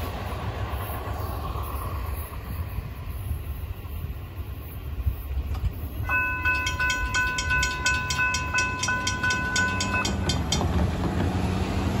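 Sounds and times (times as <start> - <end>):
cars driving across tracks: 0.0 - 12.0
low rumble of traffic: 0.0 - 12.0
railroad crossing bell ringing: 6.0 - 11.0.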